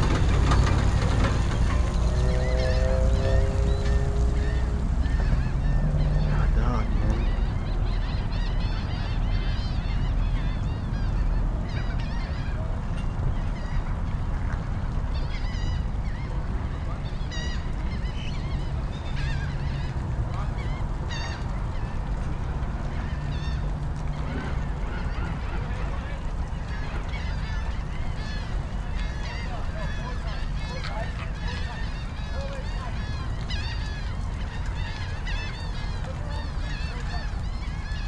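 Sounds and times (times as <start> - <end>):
steady low rumble: 0.0 - 29.2
waterbirds honking: 0.0 - 38.0.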